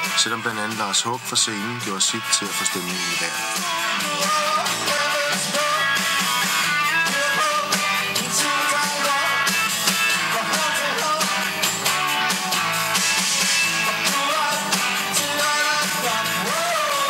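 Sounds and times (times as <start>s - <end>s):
strummed electric guitar: 0.0s - 17.0s.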